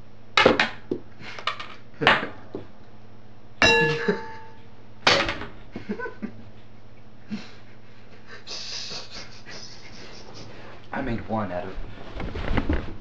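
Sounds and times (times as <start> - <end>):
sharp metallic clanks: 3.6 - 5.4.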